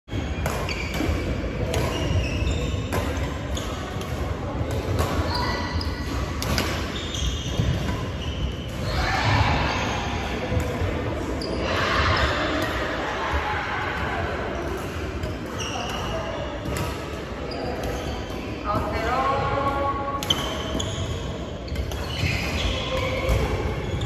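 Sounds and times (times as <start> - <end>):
sneakers squeaking on wooden floor: 0.1 - 4.0, 5.0 - 10.5, 15.2 - 19.7, 20.3 - 24.0
rackets hitting shuttlecock: 0.2 - 9.4.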